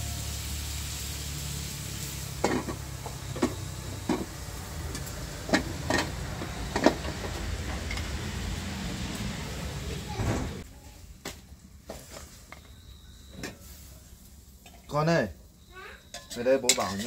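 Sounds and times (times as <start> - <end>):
utensils knocking on cookware: 2.4 - 8.2, 16.1 - 17.0.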